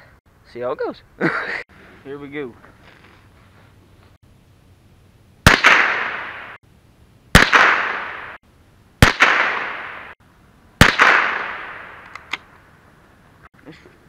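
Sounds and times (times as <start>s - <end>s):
rifle shots with echo: 5.4s - 6.6s, 7.3s - 8.4s, 9.0s - 10.2s, 10.8s - 12.1s.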